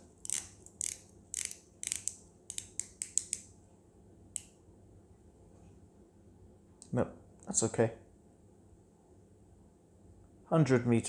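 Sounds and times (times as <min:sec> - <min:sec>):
watch crown clicking: 0:00.2 - 0:03.4.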